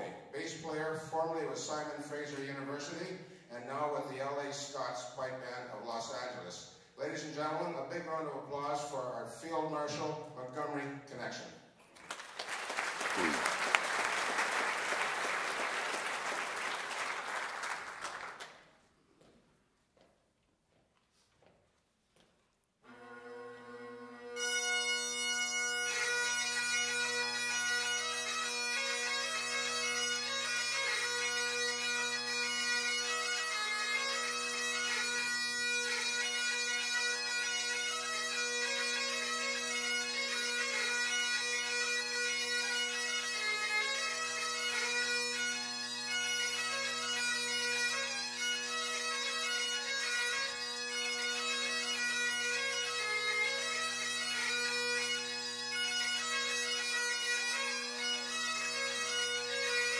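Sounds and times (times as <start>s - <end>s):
bagpipes playing: 12.2s - 18.6s, 22.8s - 59.9s.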